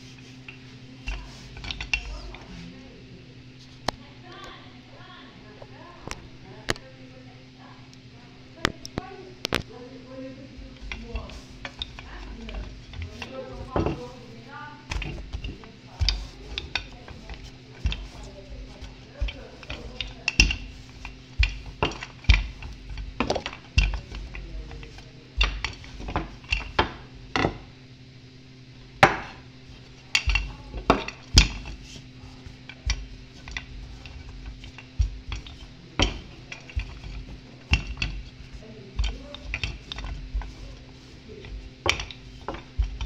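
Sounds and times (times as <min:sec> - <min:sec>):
steady low hum: 0:00.0 - 0:43.0
rolling pin knocking on countertop: 0:10.6 - 0:14.3, 0:14.9 - 0:27.7, 0:29.0 - 0:43.0.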